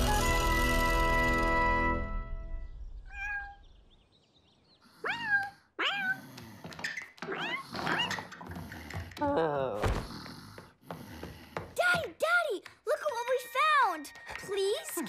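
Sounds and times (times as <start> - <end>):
kitten meowing: 3.1 - 3.6.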